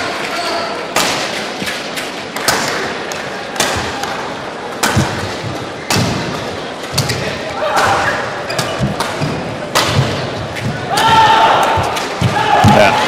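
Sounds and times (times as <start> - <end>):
arena background noise: 0.0 - 13.0
racket hitting shuttlecock: 4.8 - 12.8.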